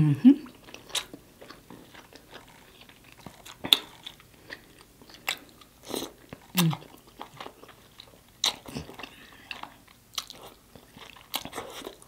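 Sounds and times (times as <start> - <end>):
chewing and lip-smacking: 0.4 - 12.0
person humming: 6.6 - 6.8.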